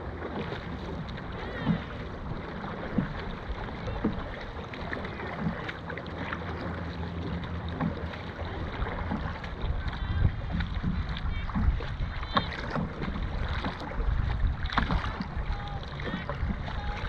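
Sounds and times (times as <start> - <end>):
paddles striking water: 0.0 - 17.0
water noise: 0.0 - 17.0.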